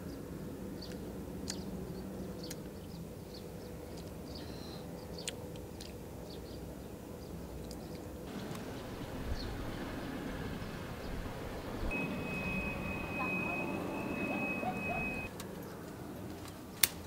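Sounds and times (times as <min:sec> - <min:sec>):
low hum: 0:08.3 - 0:15.3
high chirp: 0:11.9 - 0:15.3.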